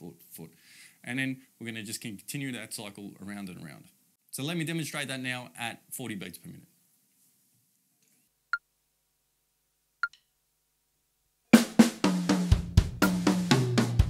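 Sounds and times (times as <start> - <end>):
bass drum notes: 11.6 - 14.0
snare and tom strokes: 11.6 - 14.0.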